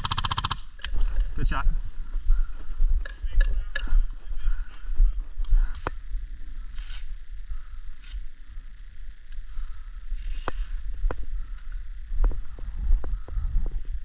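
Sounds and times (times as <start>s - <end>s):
wind rumble on microphone: 10.8s - 14.0s.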